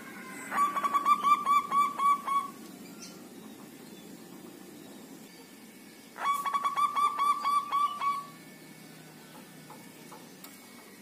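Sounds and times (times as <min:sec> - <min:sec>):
dove cooing: 0:00.0 - 0:03.8, 0:06.2 - 0:08.4.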